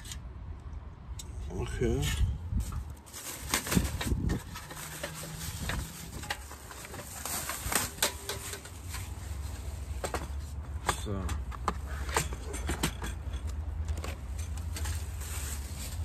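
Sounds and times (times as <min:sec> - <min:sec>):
plastic wrapping crinkling: 0:03.0 - 0:09.9, 0:14.6 - 0:16.0.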